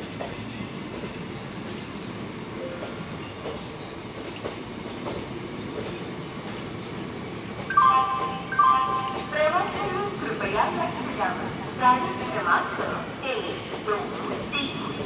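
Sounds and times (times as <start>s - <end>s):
train rumbling past: 0.0s - 15.0s
loud melodic tone: 7.7s - 9.3s.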